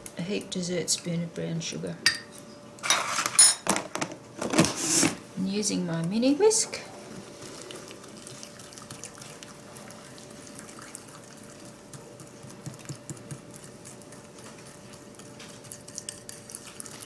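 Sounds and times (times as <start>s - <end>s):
faint steady hum: 0.0s - 17.0s
whisk scraping ceramic bowl: 11.5s - 17.0s.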